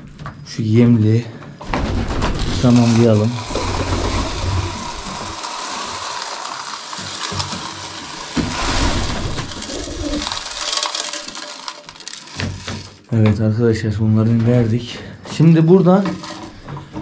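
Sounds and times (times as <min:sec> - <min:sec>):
grain pouring into trough: 0:01.7 - 0:13.2, 0:15.9 - 0:16.6.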